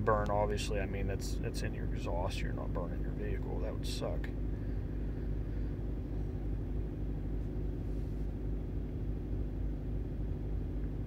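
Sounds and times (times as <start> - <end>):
diesel engine idling: 0.0 - 8.8.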